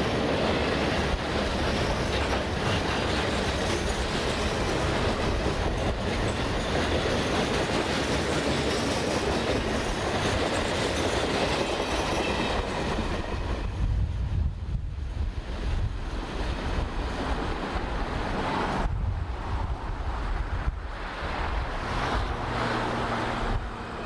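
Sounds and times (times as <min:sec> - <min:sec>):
freight train wheels rumbling: 0:00.0 - 0:24.0
wind on microphone: 0:12.6 - 0:24.0.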